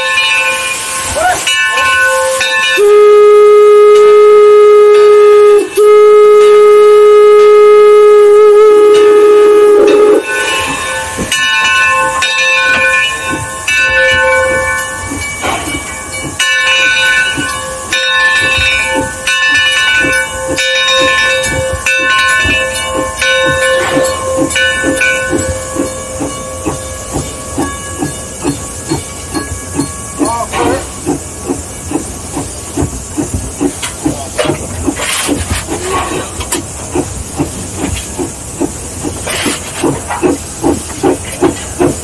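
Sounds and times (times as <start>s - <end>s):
steam whistle blasts: 0.0s - 10.8s
steam exhaust chuffing: 0.0s - 42.0s
steam hissing: 0.0s - 42.0s.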